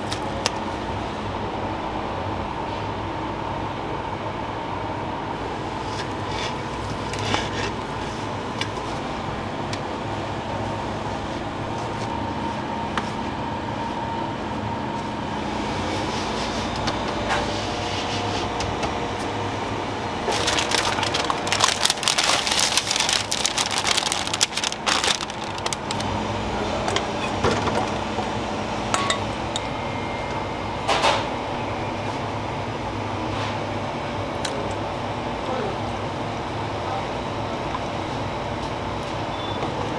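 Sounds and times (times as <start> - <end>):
kitchen machinery humming: 0.0 - 39.9
parchment paper crackling: 20.2 - 26.2.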